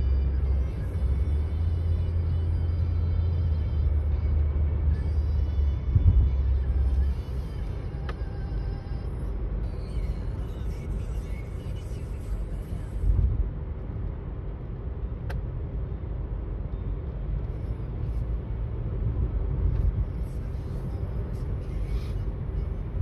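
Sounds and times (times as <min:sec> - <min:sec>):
car road and engine rumble: 0:00.0 - 0:23.0.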